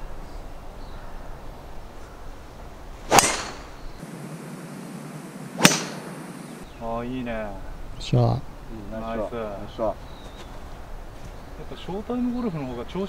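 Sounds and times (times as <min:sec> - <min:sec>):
golf club striking ball: 0:03.0 - 0:06.6.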